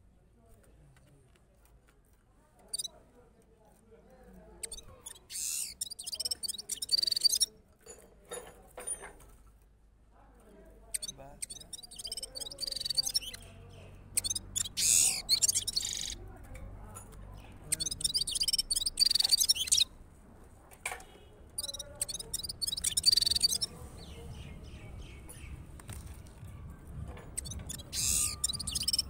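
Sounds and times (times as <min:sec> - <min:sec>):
finch singing twittering phrases: 0:04.6 - 0:07.5, 0:11.0 - 0:16.2, 0:17.4 - 0:19.9, 0:21.5 - 0:25.6, 0:27.3 - 0:29.0.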